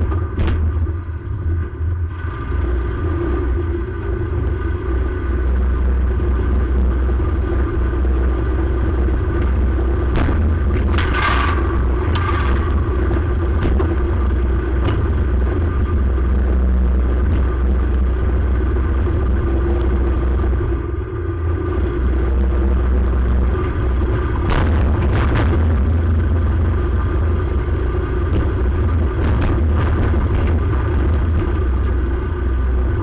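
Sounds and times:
engine running under load: 0.0s - 33.0s
knocks and rattles: 9.4s - 15.6s.

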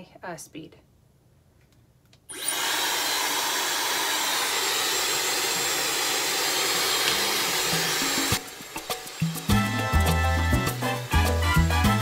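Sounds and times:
hair dryer rushing air: 2.3s - 9.8s.

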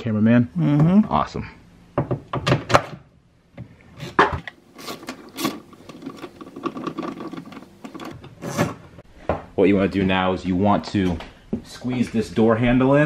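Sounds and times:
parts rattling and rubbing: 4.0s - 9.0s.

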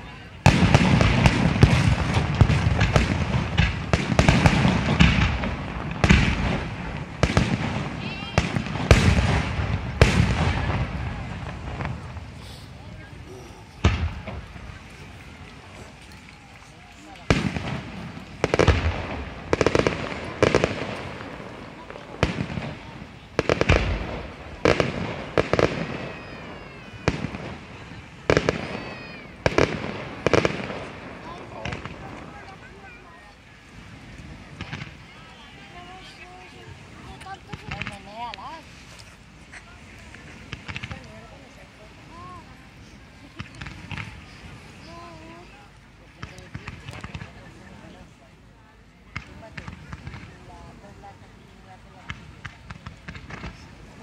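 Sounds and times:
fireworks bursting: 0.0s - 54.0s.

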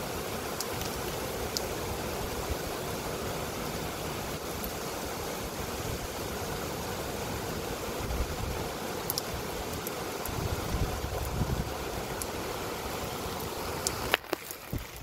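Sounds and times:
heavy rain pouring: 0.0s - 15.0s
rumbling gusts of wind: 1.8s - 15.0s
faint sharp clicks: 9.1s - 9.9s.

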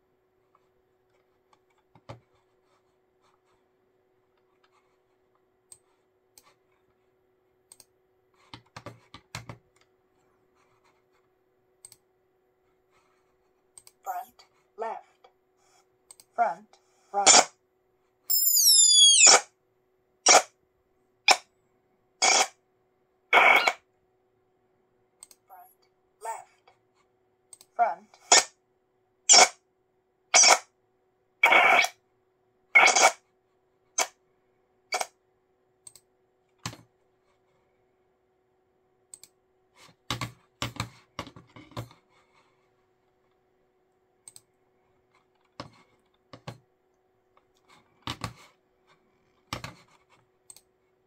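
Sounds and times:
computer mouse clicking: 5.6s - 6.6s, 7.7s - 9.9s, 11.8s - 12.1s, 13.7s - 14.0s, 16.1s - 16.3s, 25.2s - 25.4s, 27.5s - 27.7s, 35.8s - 36.8s, 39.1s - 39.4s, 44.2s - 44.5s, 49.4s - 50.7s
high-pitched descending squeal: 18.3s - 19.5s.

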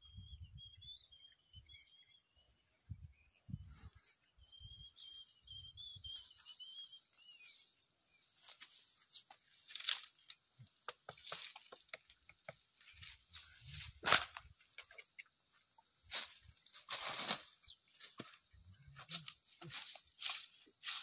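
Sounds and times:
dry straw and twigs snapping: 8.4s - 15.0s, 16.1s - 18.4s, 19.0s - 21.0s.

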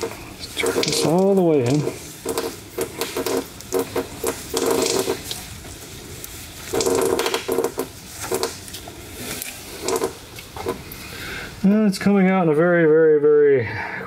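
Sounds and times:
drain petcock creaking and clicking: 0.0s - 5.4s, 6.7s - 8.6s, 9.4s - 10.8s.

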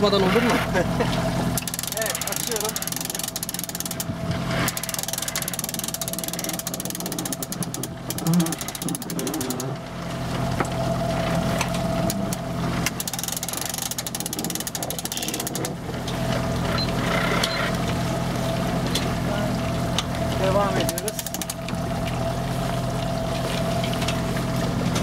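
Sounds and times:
outboard motor idling: 0.0s - 25.0s
winch clicking: 0.3s - 9.9s, 10.6s - 18.0s, 19.7s - 22.2s.

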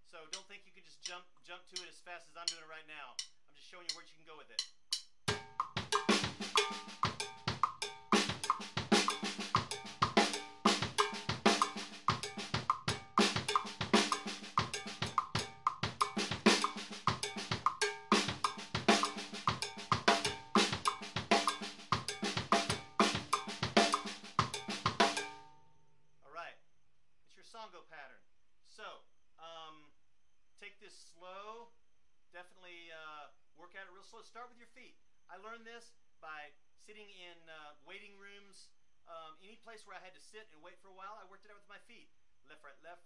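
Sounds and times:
drum kit latin groove: 4.6s - 25.6s
cowbell: 6.6s - 22.8s, 23.4s - 25.5s.

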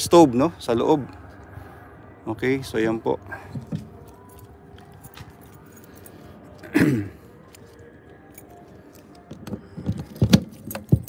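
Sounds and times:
keys jangling: 3.6s - 6.6s, 7.4s - 11.0s.

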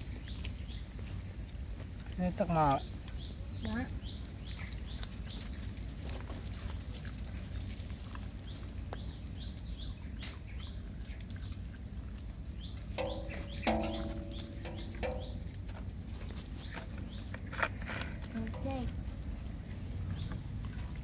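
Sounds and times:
puppies eating and shuffling on leaves: 0.0s - 21.0s
small bird chirping: 2.5s - 5.8s, 7.6s - 11.8s, 12.6s - 15.6s, 16.2s - 18.9s
steady low rumble: 2.9s - 21.0s.

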